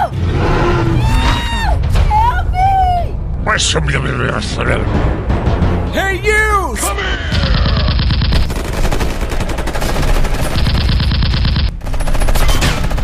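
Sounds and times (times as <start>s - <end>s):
low rumble: 0.0s - 5.9s
rapid machine-gun fire: 7.4s - 13.0s.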